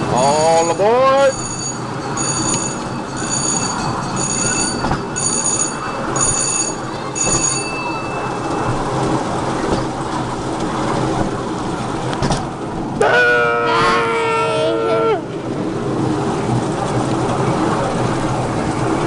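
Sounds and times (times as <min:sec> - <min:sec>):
ride-on train rumbling on track: 0:00.0 - 0:19.0
bell ringing: 0:00.1 - 0:08.8.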